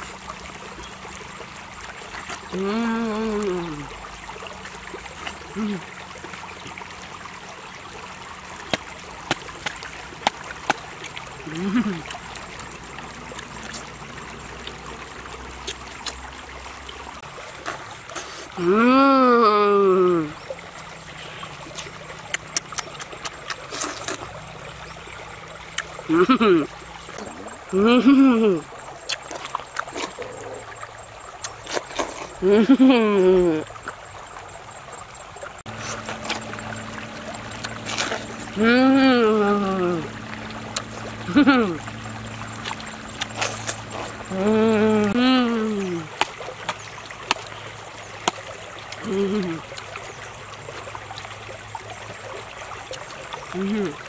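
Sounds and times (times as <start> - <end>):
stream trickling over rocks: 0.0 - 54.0
steady low hum: 35.6 - 46.1
wet bites into watermelon: 37.6 - 38.5, 42.6 - 44.2.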